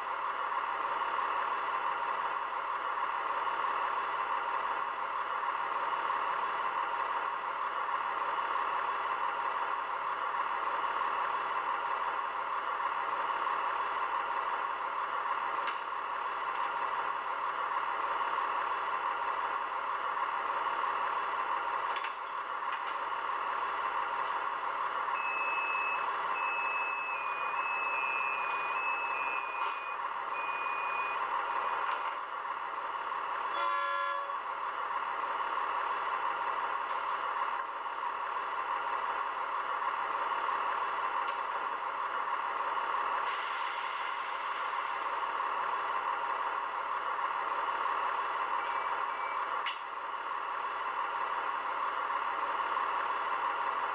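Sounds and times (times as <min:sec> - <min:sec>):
diesel engine idling: 0:00.0 - 0:53.9
two-tone door warning beeps: 0:25.2 - 0:31.8, 0:48.6 - 0:49.5
air hiss: 0:43.2 - 0:45.4.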